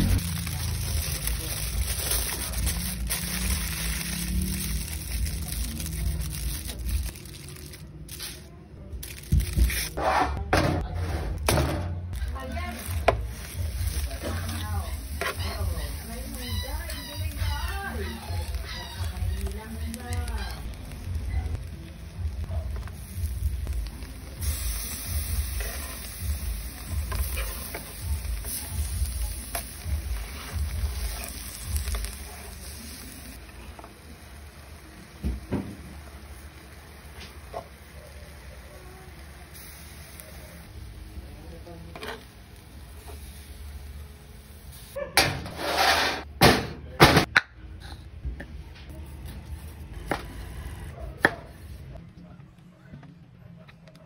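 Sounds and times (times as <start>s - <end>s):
food sizzling on a grill: 0.0s - 8.5s, 12.1s - 45.0s.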